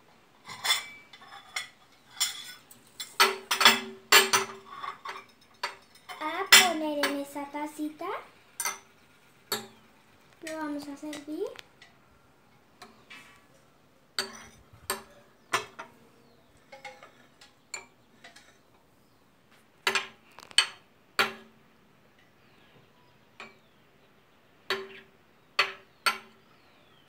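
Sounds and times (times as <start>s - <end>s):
metal spoons clinking on porcelain: 0.5s - 7.2s, 8.6s - 8.9s, 14.2s - 15.9s.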